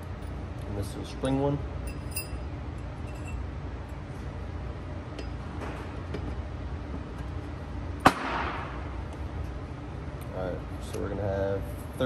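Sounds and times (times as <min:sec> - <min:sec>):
steady low hum: 0:00.0 - 0:12.0
metal clicks and clinks: 0:01.9 - 0:03.4.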